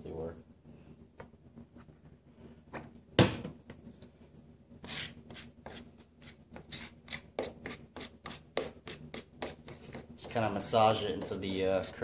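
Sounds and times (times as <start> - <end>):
hand tool scraping glue on wood: 4.8 - 12.0.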